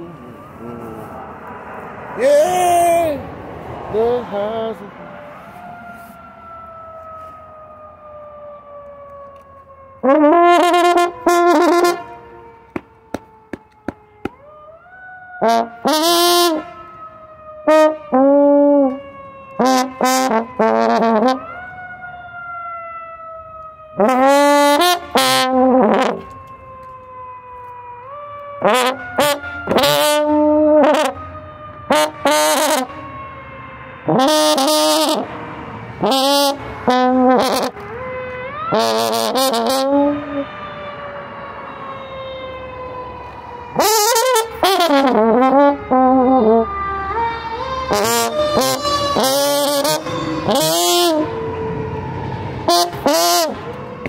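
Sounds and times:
trombone playing a melody: 10.0s - 12.1s, 15.4s - 16.7s, 17.7s - 19.0s, 19.6s - 21.5s, 24.0s - 26.3s, 28.6s - 31.2s, 31.9s - 33.0s, 34.1s - 35.3s, 36.0s - 37.8s, 38.7s - 40.5s, 43.8s - 46.7s, 47.9s - 51.4s, 52.7s - 53.6s.

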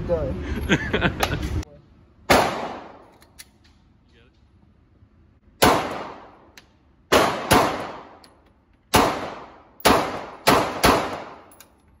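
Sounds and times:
pistol shots echoing indoors: 2.3s - 3.0s, 5.6s - 6.5s, 7.1s - 8.2s, 8.9s - 11.5s.

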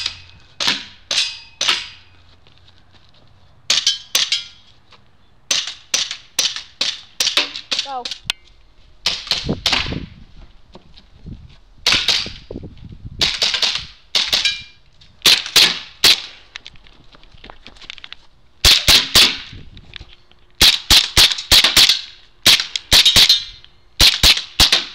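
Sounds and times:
airsoft pistol firing sharp cracks: 20.6s - 23.4s, 24.0s - 24.9s.

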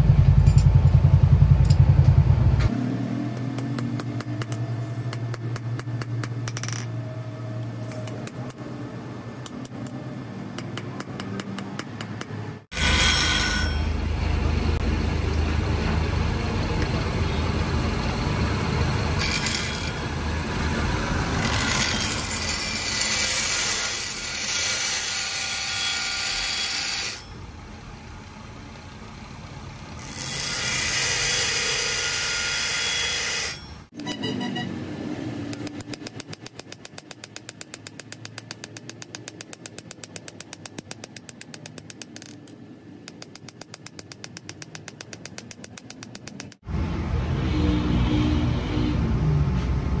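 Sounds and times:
hammer tapping on steel anvil: 3.4s - 6.9s, 10.6s - 12.4s, 35.5s - 42.4s
metal on grinding wheel: 12.7s - 14.2s, 19.2s - 20.2s, 21.2s - 27.4s, 30.0s - 33.8s.

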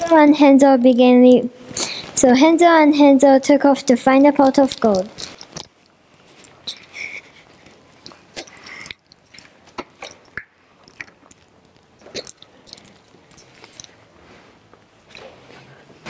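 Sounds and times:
rustling: 4.5s - 16.0s.

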